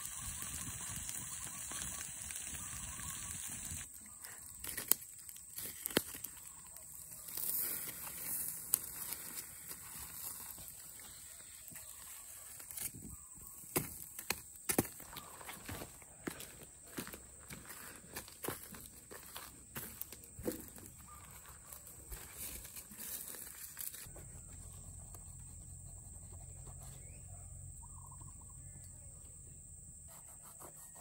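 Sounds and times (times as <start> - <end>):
steady hiss: 0.0 - 3.9
stick scraping foil parcel in ashes: 0.0 - 13.0.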